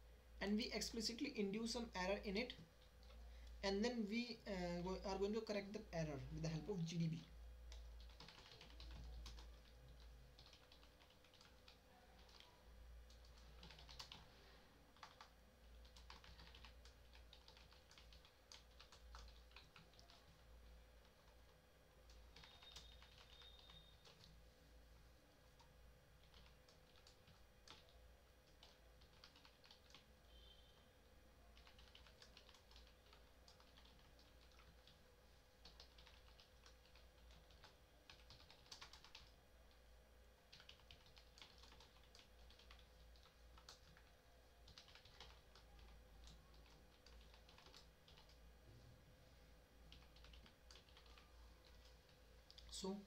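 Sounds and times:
low electrical hum: 0.0s - 53.0s
typing on computer keyboard: 6.5s - 24.4s, 25.6s - 30.1s, 31.6s - 35.0s, 35.6s - 39.4s, 40.5s - 48.4s, 49.9s - 52.8s.

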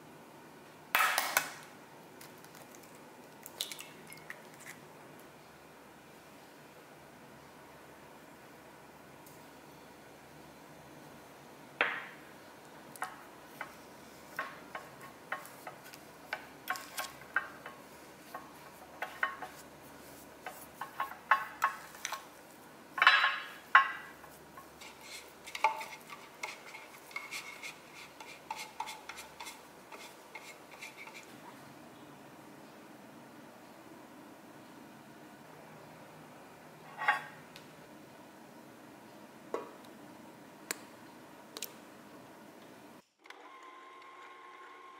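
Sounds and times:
spoon scraping glass bowl: 24.8s - 31.3s.

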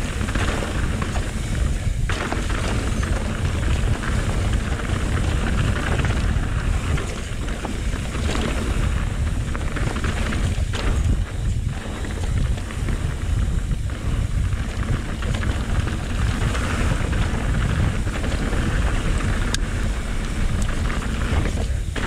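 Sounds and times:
bike rattling: 0.0s - 22.0s
tyres rolling over rocky trail: 0.0s - 22.0s
wind rumbling on microphone: 0.0s - 22.0s.

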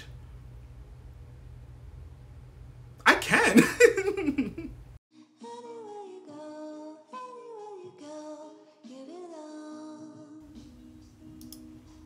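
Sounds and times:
soft music with sung vocal: 5.1s - 12.0s.

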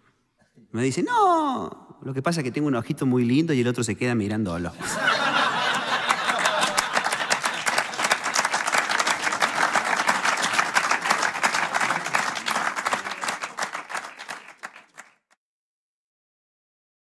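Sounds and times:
audience applauding: 5.1s - 15.4s.

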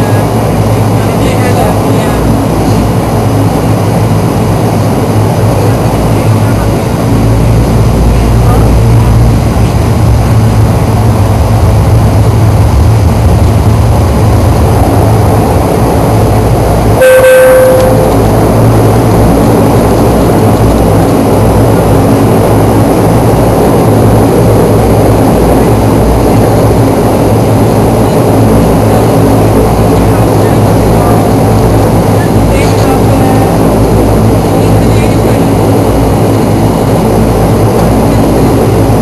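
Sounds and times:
turboprop engines and propellers: 0.0s - 39.0s
brief cabin tone: 16.9s - 18.4s.

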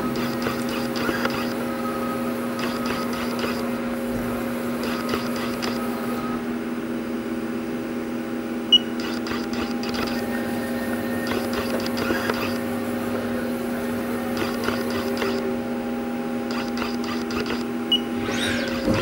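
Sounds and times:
lathe humming drone: 0.0s - 7.8s, 8.5s - 19.0s
sharp click: 16.5s - 17.7s.

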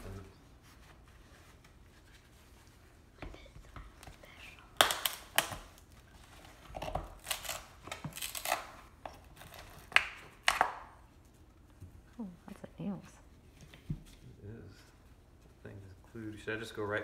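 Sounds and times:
wood cracking and creaking: 6.6s - 10.6s.

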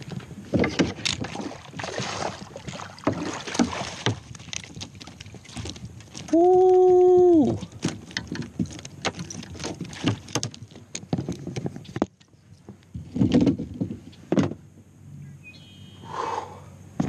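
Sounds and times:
fishing gear rattling on kayak hull: 0.0s - 14.7s.

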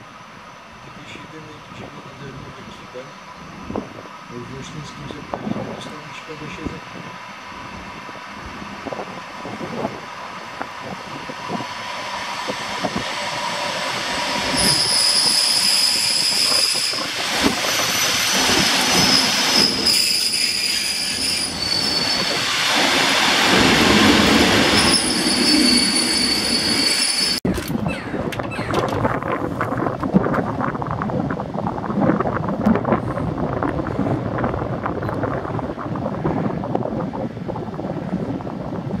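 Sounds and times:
train rolling noise: 0.0s - 39.0s
high-pitched brake squeal: 14.5s - 17.1s, 19.0s - 22.4s, 24.8s - 28.7s.

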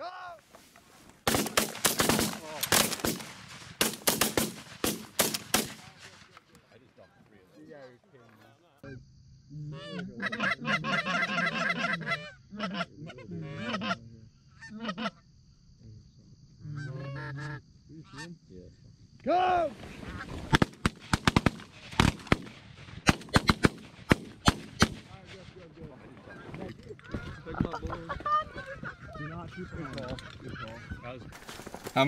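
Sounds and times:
shotgun blasts: 1.2s - 6.4s, 20.5s - 25.7s
geese honking: 9.8s - 14.0s, 25.1s - 31.3s.

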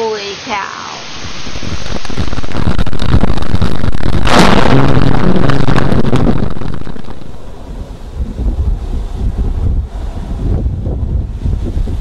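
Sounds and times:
rain noise: 0.0s - 12.0s
low steady drone: 0.6s - 9.9s
thunder crack: 1.2s - 9.8s.

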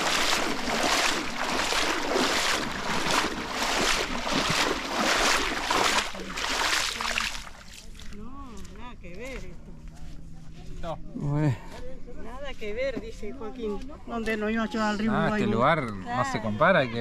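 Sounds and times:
footsteps splashing in shallow water: 0.0s - 8.8s.

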